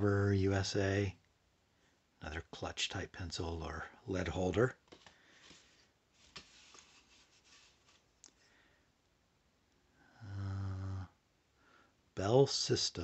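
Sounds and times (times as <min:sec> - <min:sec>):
man humming low: 0:10.2 - 0:11.1.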